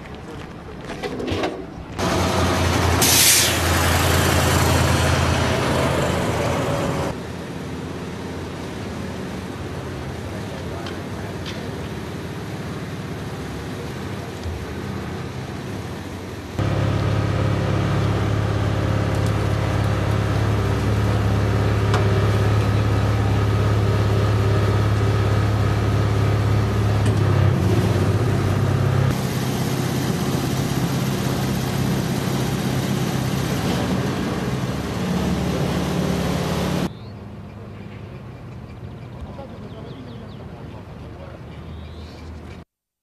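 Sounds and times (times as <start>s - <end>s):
motorcycle engine humming: 9.4s - 36.9s.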